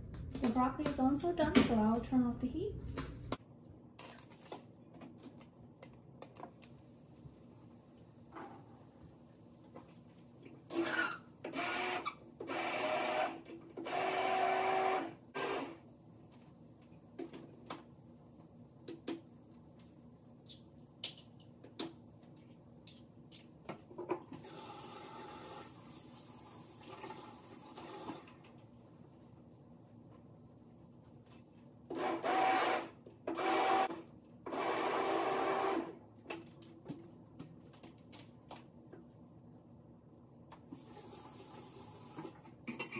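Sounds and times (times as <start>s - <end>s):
blender pulsing: 10.7s - 15.8s, 31.9s - 35.9s.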